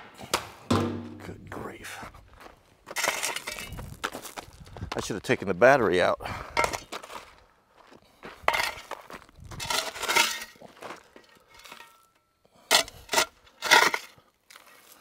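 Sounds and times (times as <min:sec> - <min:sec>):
shovel scraping into gravel: 0:02.9 - 0:03.7, 0:08.5 - 0:10.7, 0:12.7 - 0:15.0
gravel stones rattling and clinking: 0:02.9 - 0:05.1, 0:08.2 - 0:12.2.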